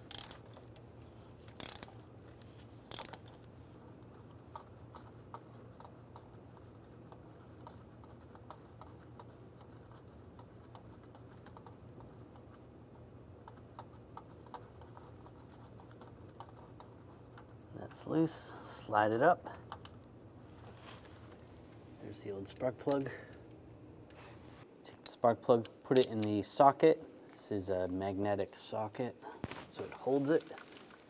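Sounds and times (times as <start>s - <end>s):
ratchet clicking: 0.0s - 0.6s, 1.5s - 2.0s, 2.9s - 3.4s.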